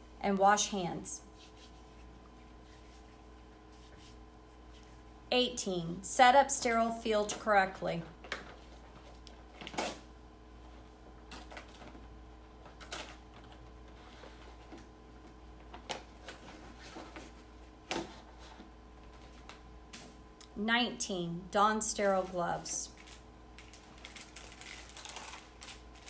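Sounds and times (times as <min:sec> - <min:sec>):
faint steady hum: 0:00.0 - 0:26.0
packaging rustling and crinkling: 0:22.2 - 0:26.0.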